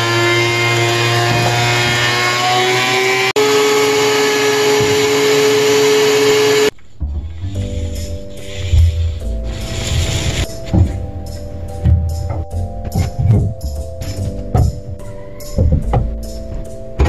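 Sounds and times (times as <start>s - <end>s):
thickness planer drone: 0.0s - 11.0s
motor whine: 8.5s - 10.5s.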